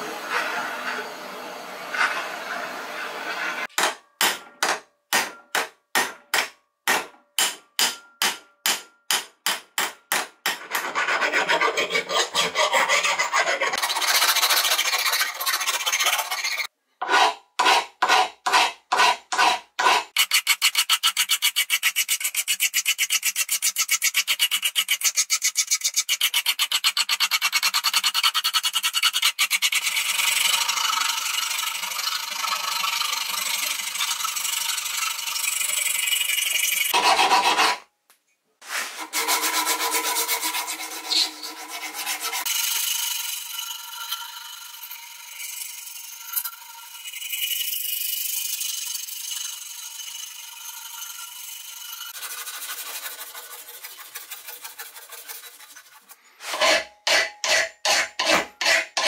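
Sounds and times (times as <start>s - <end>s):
abrasive rubbing on steel: 49.7s - 59.0s.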